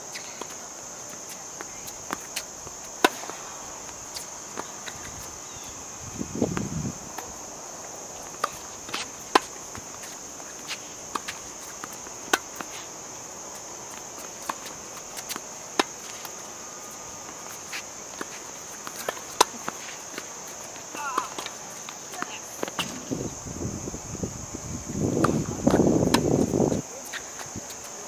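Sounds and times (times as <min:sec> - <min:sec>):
crickets chirping: 0:00.0 - 0:28.0
tennis ball hit by racquet: 0:03.0 - 0:03.5, 0:25.2 - 0:26.5.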